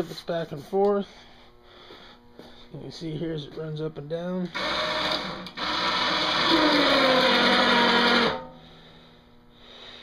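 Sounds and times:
electric winch motor whine: 0:04.5 - 0:09.0.

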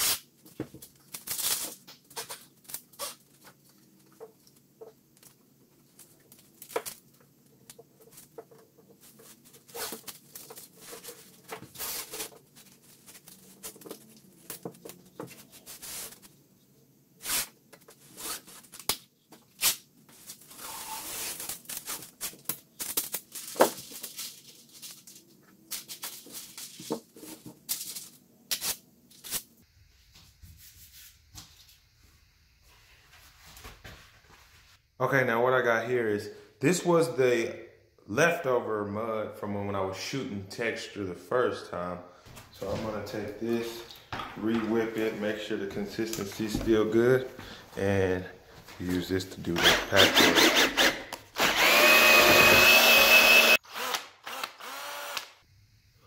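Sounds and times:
tape ripping off roll: 0:01.0 - 0:03.4
masking paper crinkling: 0:05.1 - 0:16.3.

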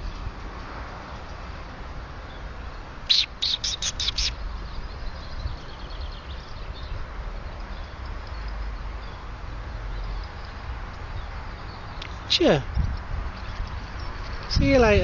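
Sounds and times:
faint birdsong: 0:01.1 - 0:15.0
small bird chirping: 0:03.1 - 0:14.7.

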